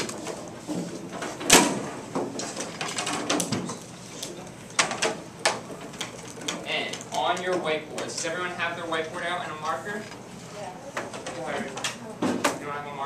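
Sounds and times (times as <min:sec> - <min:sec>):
clatter and rustling: 0:00.0 - 0:08.4.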